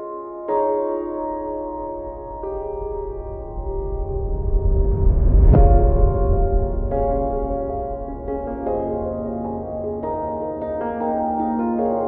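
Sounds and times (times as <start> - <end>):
ambient music with held notes: 0.0 - 12.0
low hit: 1.3 - 10.3.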